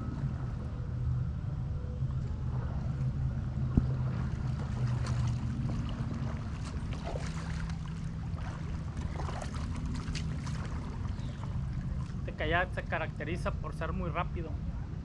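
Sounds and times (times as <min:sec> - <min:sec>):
steady low rumble: 0:00.0 - 0:15.0
small waves lapping and splashing: 0:02.0 - 0:12.9.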